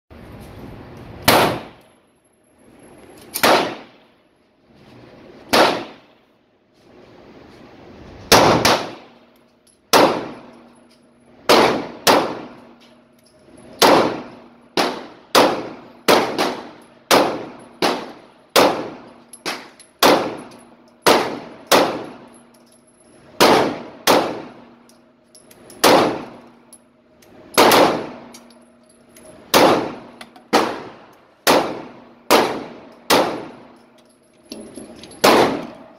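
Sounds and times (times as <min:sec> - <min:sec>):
pistol shots echoing indoors: 0:01.2 - 0:01.8, 0:03.4 - 0:04.0, 0:05.5 - 0:06.0, 0:11.5 - 0:12.7, 0:13.8 - 0:22.3, 0:23.4 - 0:24.8, 0:25.8 - 0:26.4, 0:27.5 - 0:28.5, 0:29.5 - 0:33.7, 0:35.2 - 0:35.9.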